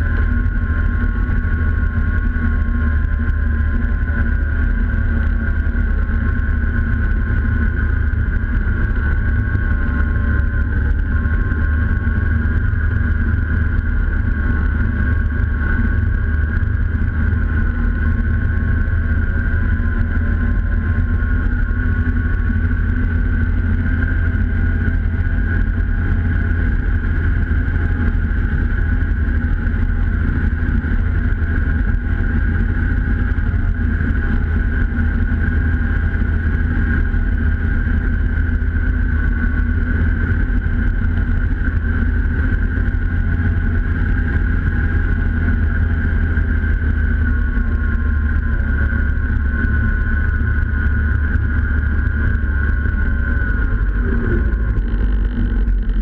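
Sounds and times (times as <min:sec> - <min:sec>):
snowmobile engine rumble: 0:00.0 - 0:56.0
steady high whine: 0:00.0 - 0:56.0.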